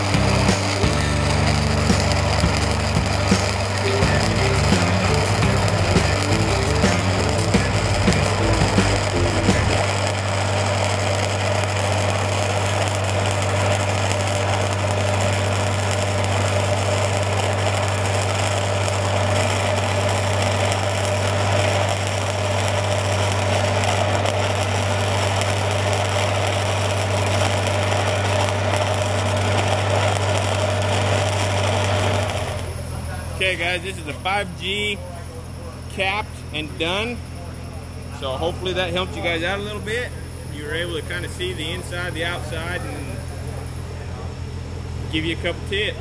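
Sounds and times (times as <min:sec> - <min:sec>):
welding arc sizzling: 0:00.0 - 0:34.8, 0:38.6 - 0:43.2.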